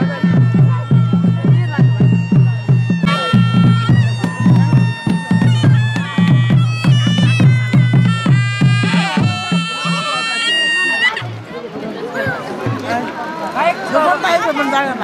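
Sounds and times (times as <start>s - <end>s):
quick drum beat: 0.0s - 10.5s.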